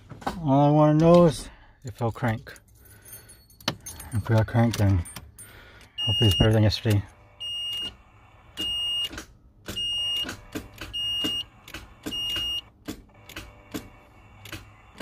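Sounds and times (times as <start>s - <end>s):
car warning beep: 5.9s - 12.7s.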